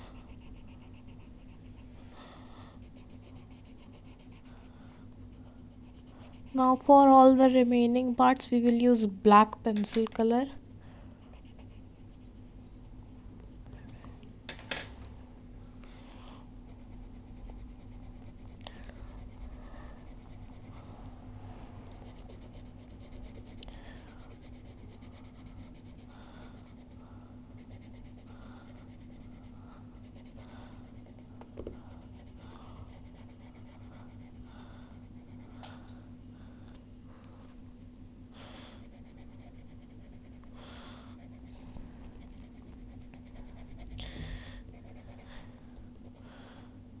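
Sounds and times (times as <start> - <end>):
low steady hum: 0.0 - 47.0
pencil shading on paper: 0.2 - 1.8, 2.8 - 4.6, 5.3 - 7.4, 16.7 - 20.8, 21.9 - 27.0, 27.6 - 35.5, 38.8 - 40.6, 42.2 - 44.0, 44.7 - 45.3.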